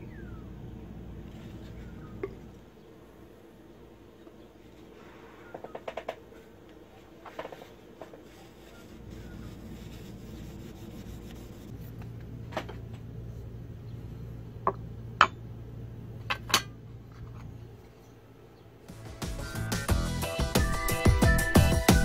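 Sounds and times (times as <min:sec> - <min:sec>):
low steady hum: 0:00.0 - 0:18.9
cloth rubbing wooden handle: 0:07.0 - 0:11.8.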